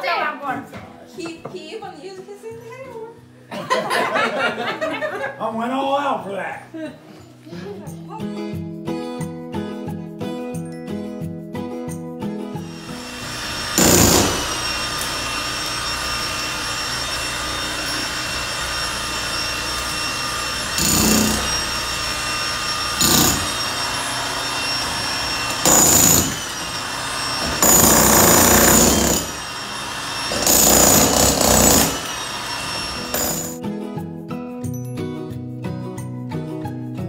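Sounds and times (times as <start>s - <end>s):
demolition hammer breaking tiles: 12.9s - 33.6s.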